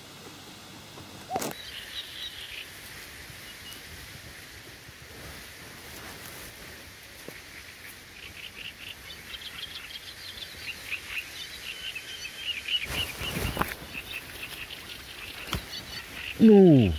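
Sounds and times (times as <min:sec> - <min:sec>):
birds chirping: 0:01.2 - 0:03.9, 0:07.2 - 0:16.9.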